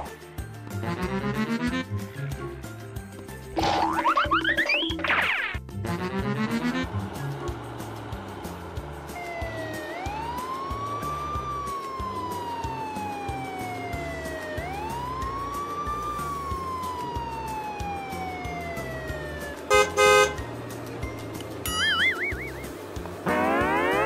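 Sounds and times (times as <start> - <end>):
music beat: 5.8 - 24.0
police siren wailing: 8.8 - 24.0.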